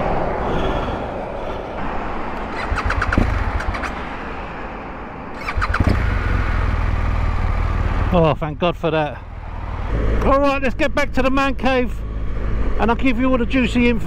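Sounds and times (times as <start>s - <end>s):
passing traffic: 0.0s - 14.0s
motorcycle starter cranking: 5.4s - 6.0s.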